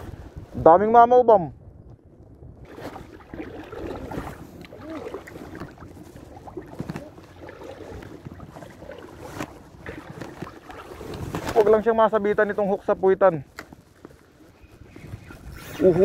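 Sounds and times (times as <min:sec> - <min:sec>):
shallow water lapping and sloshing: 0:02.6 - 0:12.8.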